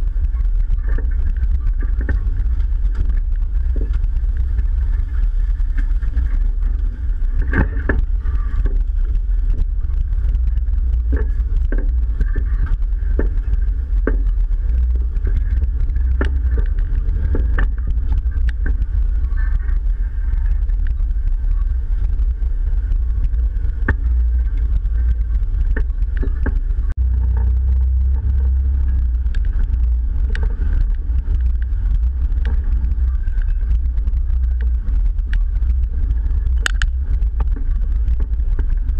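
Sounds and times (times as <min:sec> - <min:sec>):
engine deep rumble: 0:00.0 - 0:38.9
tires rolling over sticks and rocks: 0:00.0 - 0:38.9.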